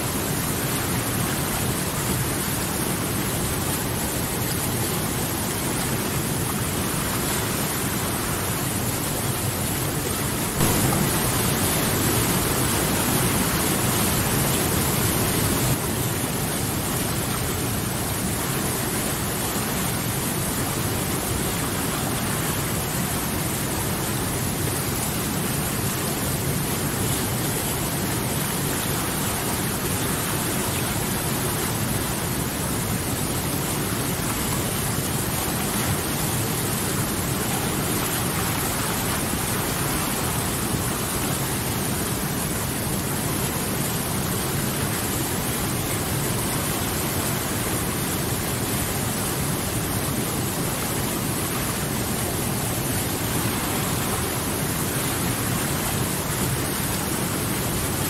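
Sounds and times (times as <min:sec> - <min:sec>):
river rushing over boulders: 0:00.0 - 0:58.0.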